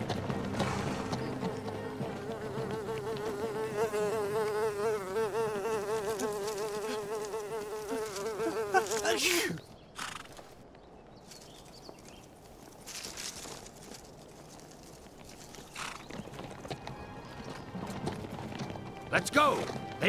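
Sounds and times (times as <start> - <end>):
cartoon fly buzzing: 2.2 - 9.2.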